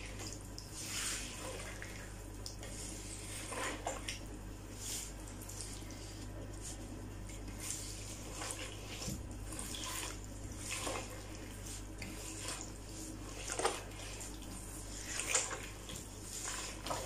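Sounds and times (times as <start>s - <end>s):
wet squelches and scrapes: 0.0s - 17.0s.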